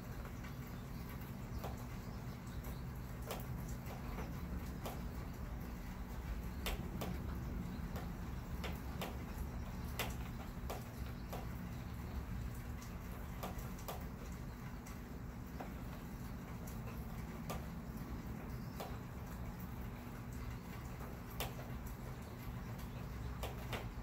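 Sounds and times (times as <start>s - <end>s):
low rumble of wind: 0.0s - 24.0s
raindrops ticking: 0.0s - 24.0s.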